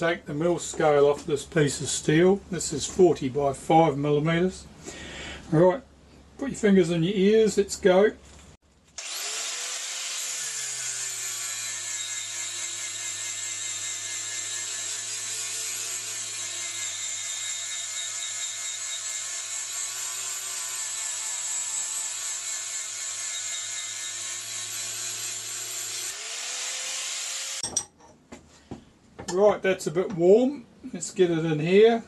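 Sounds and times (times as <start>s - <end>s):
angle grinder grinding steel: 9.0s - 27.9s.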